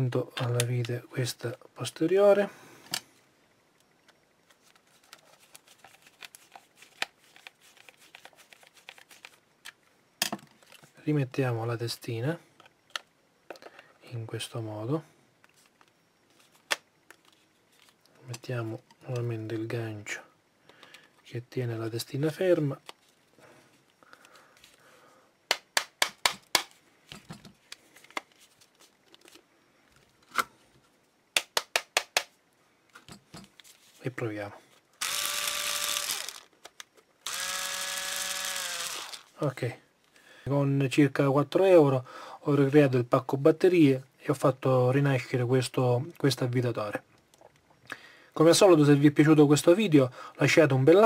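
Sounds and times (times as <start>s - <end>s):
screwdriver turning screw into plastic: 35.0s - 39.3s.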